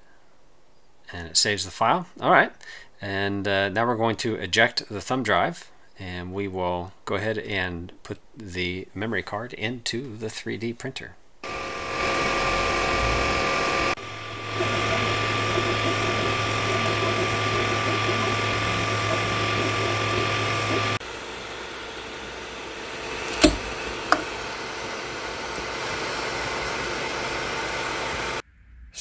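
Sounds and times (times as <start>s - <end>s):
three d printer whine: 11.4s - 28.4s
sharp clicks: 23.3s - 24.3s.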